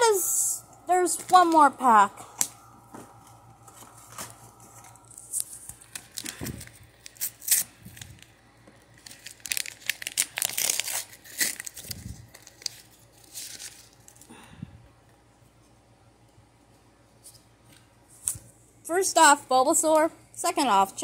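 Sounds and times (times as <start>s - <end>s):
paper pack tearing and crumpling: 4.1s - 14.3s.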